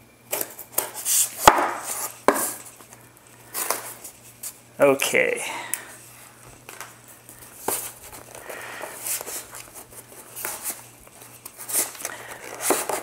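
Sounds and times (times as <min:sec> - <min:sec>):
cardboard rustling and scraping: 0:00.4 - 0:04.7, 0:06.7 - 0:13.0
packing tape peeling: 0:06.6 - 0:13.0.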